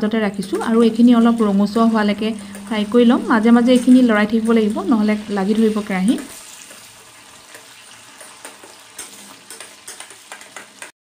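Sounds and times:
chicken sizzling in hot oil: 0.4 - 10.9
spatula clicks: 8.2 - 10.9.

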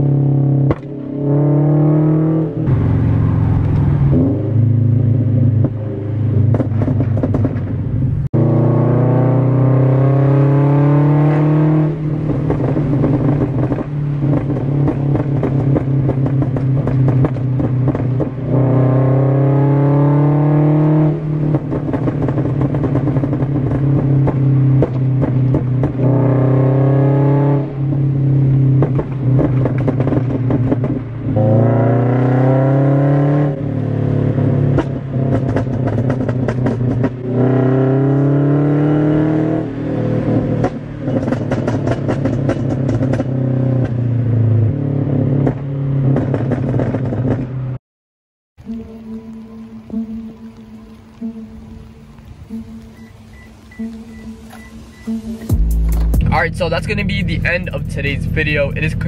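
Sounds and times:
car engine accelerating: 0.0 - 47.8, 48.6 - 59.0
exhaust pops crackling: 0.6 - 1.0, 2.6 - 4.7, 5.3 - 8.3, 11.8 - 19.2, 21.2 - 26.5, 28.4 - 31.7, 34.7 - 37.4, 40.4 - 44.2, 45.4 - 47.6, 48.6 - 59.0.

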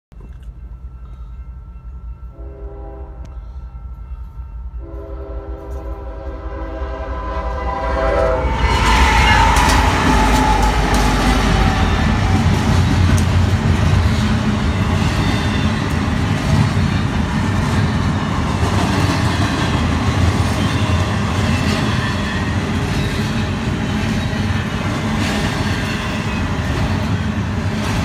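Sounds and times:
crossing bell ringing: 0.4 - 6.2, 7.2 - 23.6
train horn blasts: 2.2 - 4.1, 4.7 - 13.6
train wheels on rails: 3.2 - 28.0.

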